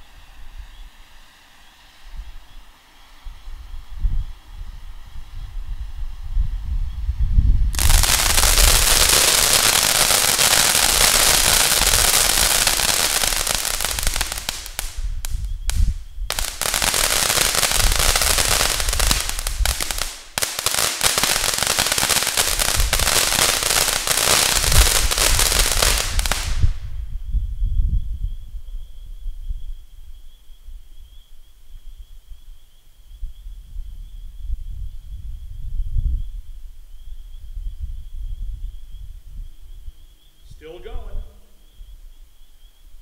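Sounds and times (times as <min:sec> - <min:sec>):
fountain firework hissing and crackling: 0:00.0 - 0:26.9.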